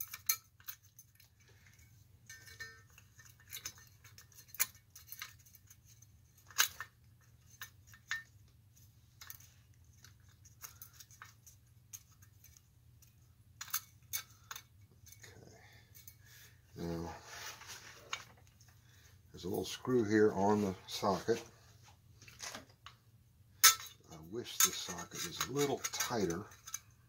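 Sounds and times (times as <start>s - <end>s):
small metallic clicks and clinks: 0.0s - 16.3s, 23.6s - 27.0s.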